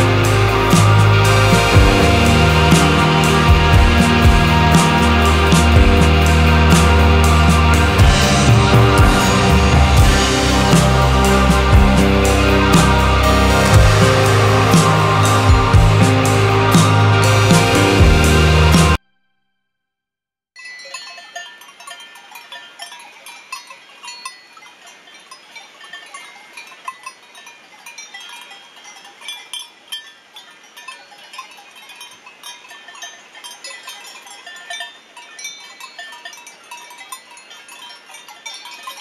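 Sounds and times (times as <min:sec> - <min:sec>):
goat bells clanking: 0:20.6 - 0:39.0.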